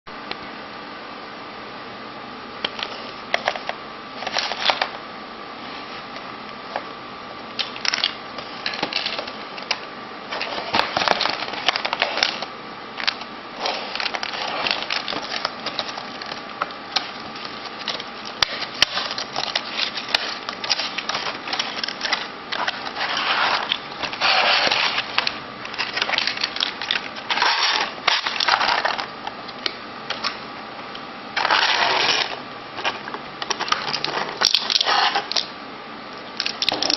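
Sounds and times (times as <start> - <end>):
faint steady hum: 0.1 - 36.9
cardboard and plastic rustling: 7.9 - 29.2, 31.4 - 35.4.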